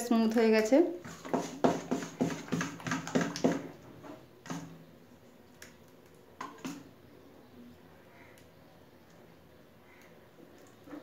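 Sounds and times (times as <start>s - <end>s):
ladle knocking in batter bowl: 1.0s - 3.8s, 6.4s - 6.9s.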